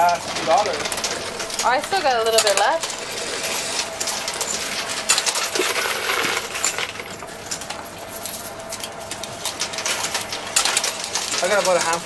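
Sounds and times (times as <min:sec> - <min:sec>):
coins clinking and dropping: 0:04.0 - 0:07.6.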